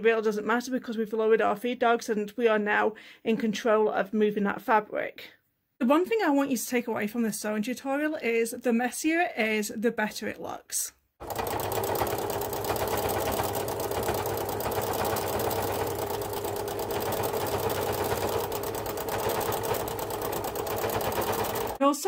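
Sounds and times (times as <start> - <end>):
sewing machine running: 11.2 - 21.8.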